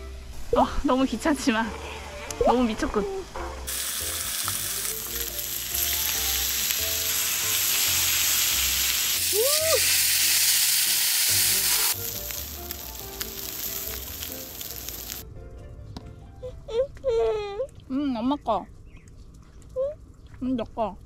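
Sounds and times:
meat sizzling on griddle pan: 3.7 - 15.2.

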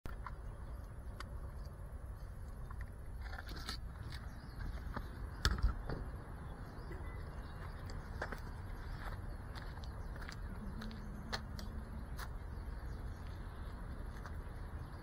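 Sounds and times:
camera handling rumble: 2.4 - 6.0.

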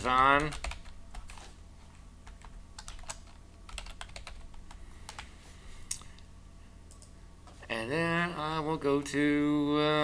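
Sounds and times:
keyboard typing clicks: 2.2 - 5.3, 6.9 - 7.1.

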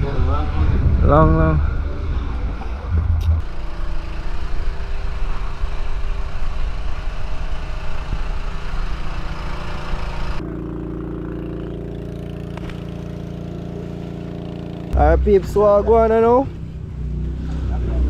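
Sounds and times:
engine running steadily: 0.0 - 18.0
rushing noise: 0.7 - 7.3.

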